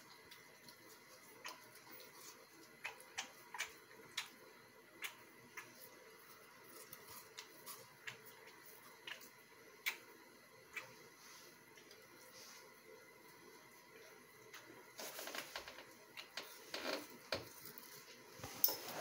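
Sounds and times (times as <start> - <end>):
puppy crunching watermelon rind: 0.0 - 10.1.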